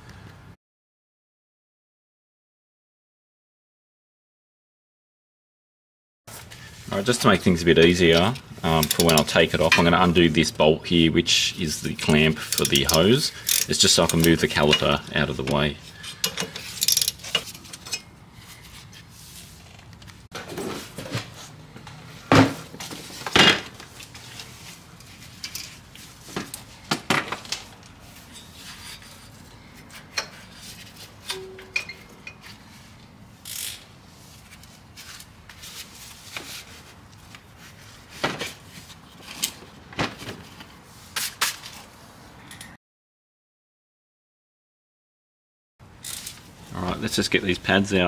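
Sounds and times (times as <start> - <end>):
metal tools knocking and clinking: 16.1 - 18.1, 31.2 - 32.5.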